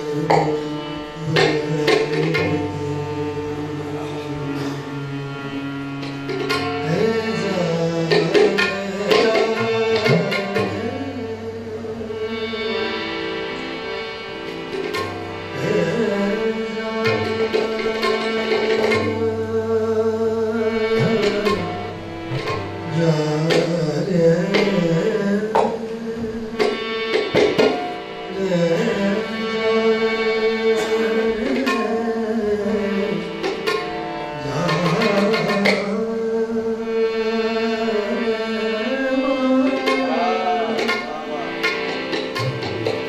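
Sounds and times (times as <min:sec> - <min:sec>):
tabla strokes: 0:00.0 - 0:03.0, 0:05.9 - 0:11.0, 0:14.3 - 0:19.6, 0:20.6 - 0:28.9, 0:30.7 - 0:36.2, 0:38.9 - 0:43.0
man singing: 0:00.0 - 0:05.6, 0:06.8 - 0:13.0, 0:15.5 - 0:21.9, 0:22.8 - 0:27.6, 0:28.3 - 0:33.6, 0:34.4 - 0:41.6
harmonium chords: 0:00.0 - 0:43.0.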